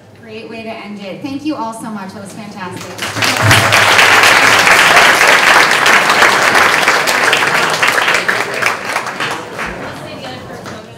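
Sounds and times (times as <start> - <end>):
audience applauding: 2.8 - 10.9.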